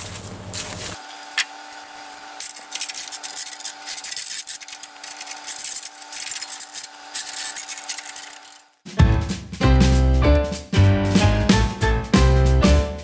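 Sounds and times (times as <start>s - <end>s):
scraping and rustling of gear: 1.7s - 8.7s.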